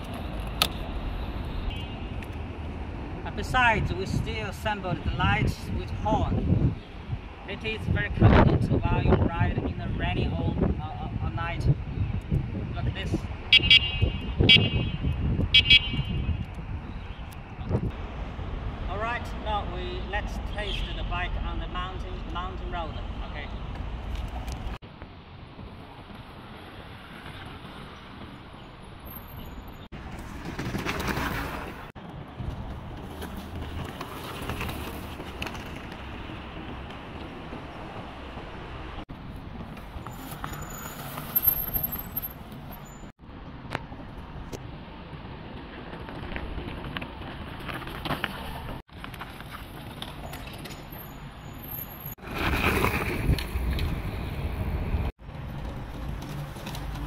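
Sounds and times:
wind rushing over microphone: 0.0s - 19.5s, 52.2s - 57.0s
road noise: 0.0s - 57.0s
tyre rumble: 30.0s - 38.6s.

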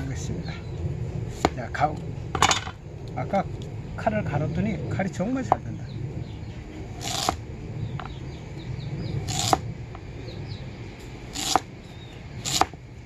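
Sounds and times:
knife slicing sweet potato: 12.4s - 12.8s.

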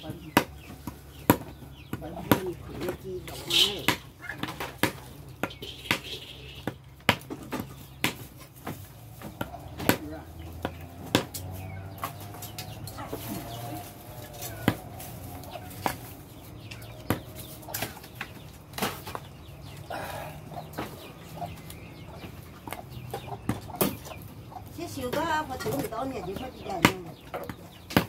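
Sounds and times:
cleaver chopping on wooden block: 3.8s - 8.3s, 9.2s - 12.2s.

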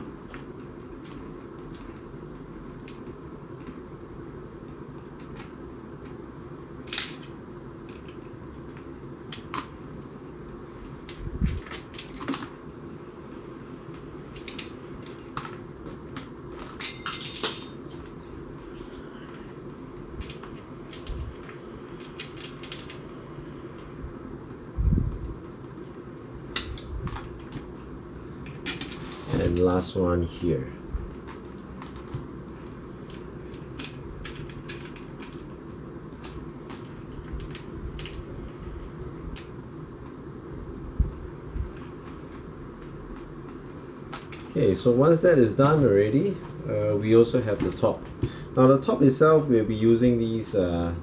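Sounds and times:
steady low hum: 0.0s - 51.0s
plastic parts clicking: 36.2s - 38.7s.

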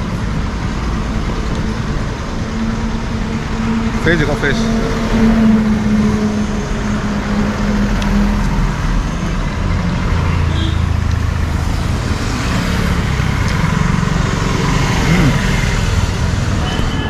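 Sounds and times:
low engine drone: 0.0s - 17.0s
road traffic: 0.0s - 17.0s.

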